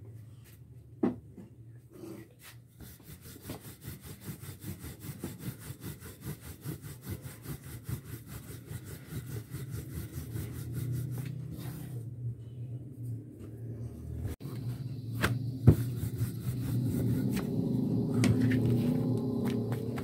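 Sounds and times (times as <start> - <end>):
rolling pin rubbing over dough: 2.0 - 12.1, 14.2 - 20.0.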